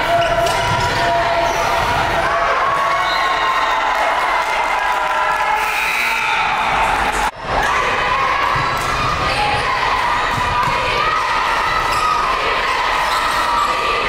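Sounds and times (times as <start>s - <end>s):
arena crowd noise: 0.0s - 14.0s
basketball bouncing: 0.1s - 1.2s.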